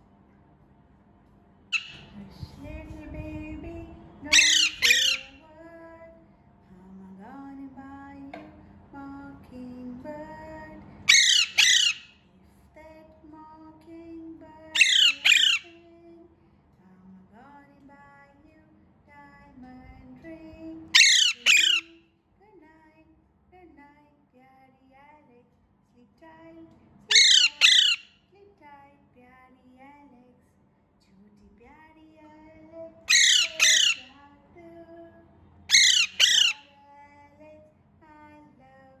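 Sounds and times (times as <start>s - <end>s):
parakeet squawking: 1.7s - 2.1s, 4.3s - 5.4s, 11.1s - 12.2s, 14.7s - 15.7s, 20.9s - 22.0s, 27.1s - 28.1s, 33.1s - 34.2s, 35.7s - 36.7s
parakeet calls: 1.7s - 2.2s, 4.3s - 5.4s, 11.1s - 12.2s, 14.7s - 15.8s, 20.9s - 22.0s, 27.1s - 28.2s, 33.1s - 34.2s, 35.7s - 36.8s
soft background music with singing: 1.8s - 39.0s.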